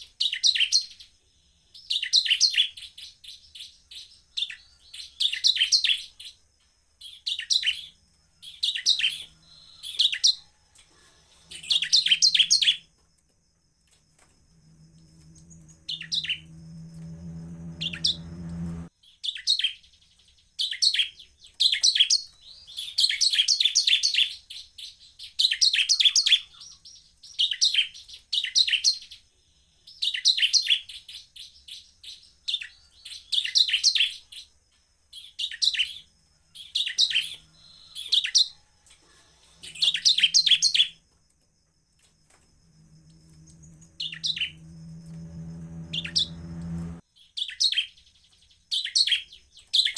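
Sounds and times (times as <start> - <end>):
steady low hum: 14.0 - 18.9, 42.2 - 47.0
bird chattering song: 15.4 - 16.6, 43.4 - 44.7.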